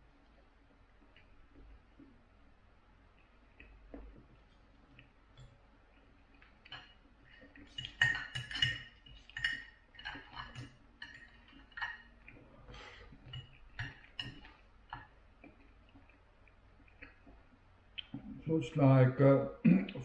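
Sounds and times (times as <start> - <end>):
cutlery clinking on a plate: 7.8 - 12.1, 13.2 - 14.5.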